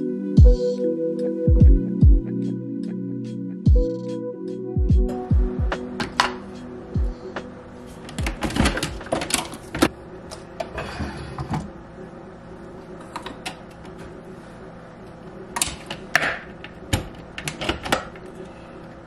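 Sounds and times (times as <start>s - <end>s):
faint steady hum: 4.6s - 19.0s.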